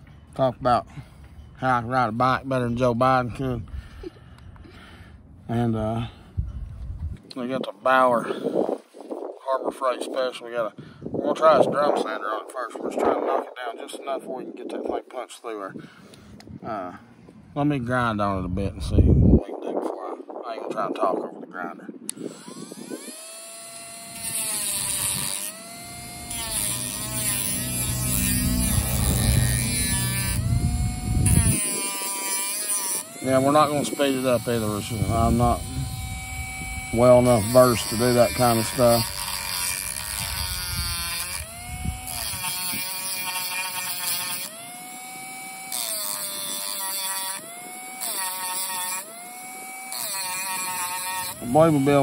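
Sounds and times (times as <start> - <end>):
rotary tool whining: 22.1 - 52.0.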